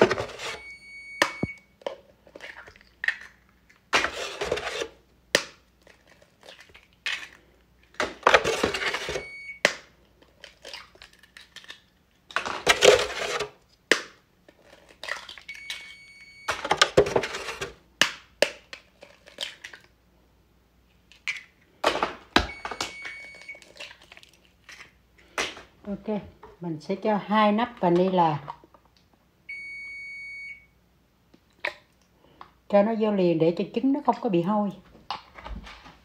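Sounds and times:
eggs cracking: 0:01.2 - 0:04.4, 0:09.6 - 0:13.0, 0:13.7 - 0:15.9, 0:18.0 - 0:20.0, 0:20.9 - 0:25.7.

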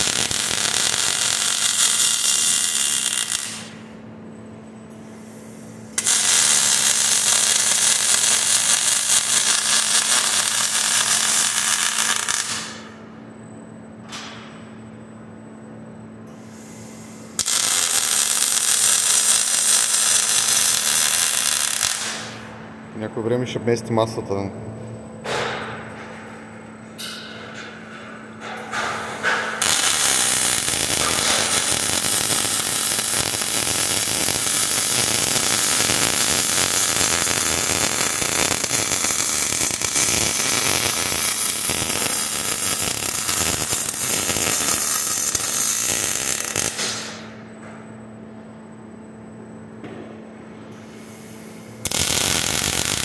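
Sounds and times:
welding arc crackling and sizzling: 0:00.0 - 0:03.9, 0:05.9 - 0:13.0, 0:16.6 - 0:22.5, 0:28.5 - 0:47.4, 0:51.7 - 0:53.0
low equipment hum: 0:00.0 - 0:53.0.

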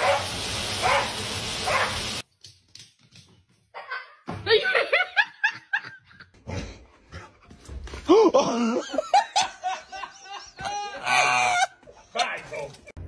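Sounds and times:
people laughing: 0:03.8 - 0:06.4, 0:08.1 - 0:12.6.

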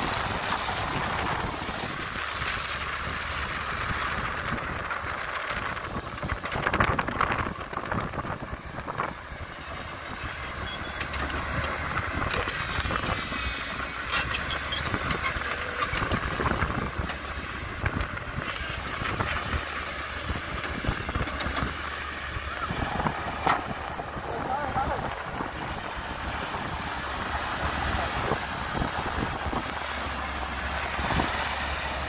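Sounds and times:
excavator diesel engine running: 0:00.0 - 0:32.0.

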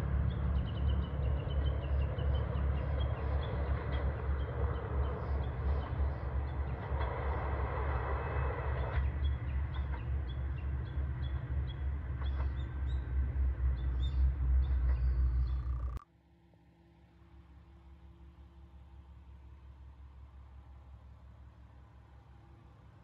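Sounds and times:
diesel engine rumble: 0:00.0 - 0:16.0
small birds chirping: 0:08.8 - 0:16.0.

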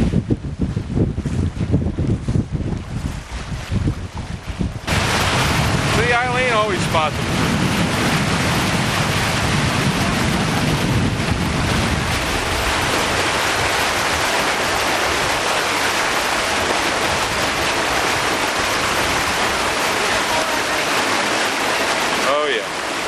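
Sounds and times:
heavy low rumble: 0:00.0 - 0:14.2
wind and water rushing: 0:00.0 - 0:23.0.

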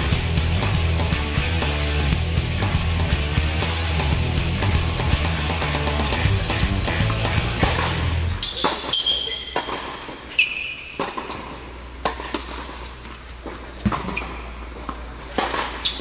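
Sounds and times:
racket striking tennis ball: 0:04.0 - 0:10.3, 0:10.9 - 0:16.0
ball bouncing: 0:05.0 - 0:10.2, 0:11.0 - 0:16.0
sneakers squeaking on court: 0:08.4 - 0:16.0.

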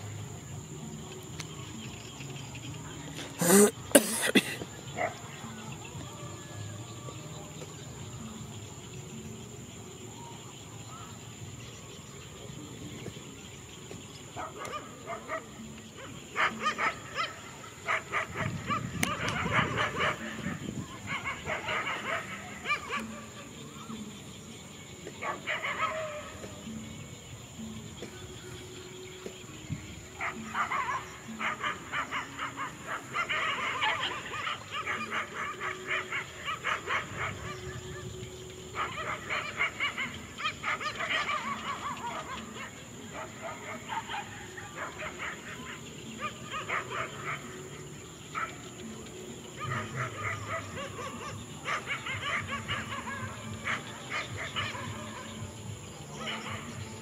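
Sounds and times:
dogs barking: 0:03.2 - 0:06.2, 0:14.3 - 0:24.0, 0:25.0 - 0:26.9, 0:30.1 - 0:57.0.

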